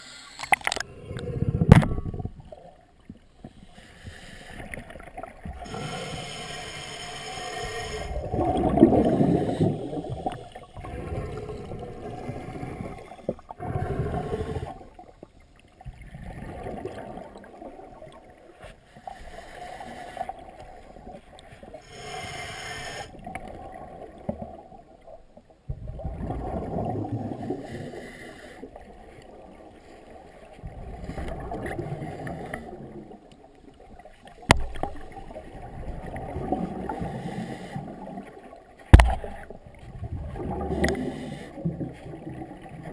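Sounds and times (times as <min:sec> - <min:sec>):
muffled underwater bubbles gurgling: 0:04.2 - 0:15.0, 0:39.0 - 0:42.9.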